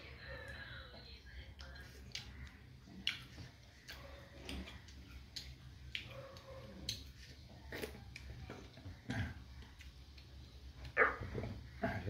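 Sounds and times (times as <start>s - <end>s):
faint low hum: 0.0s - 12.0s
wet chewing smacks: 1.6s - 11.2s.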